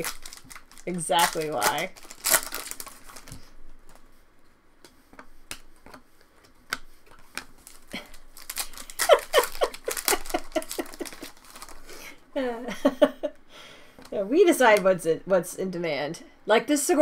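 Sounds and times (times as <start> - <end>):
foil wrapper crinkling and tearing: 0.0 - 4.1, 6.8 - 12.2.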